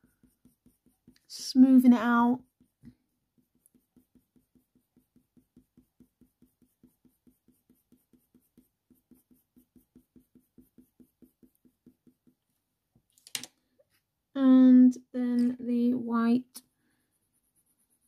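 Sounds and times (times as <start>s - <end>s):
pencil strokes on paper: 0.0s - 12.5s, 16.8s - 18.0s
pencil clattering: 13.1s - 13.6s.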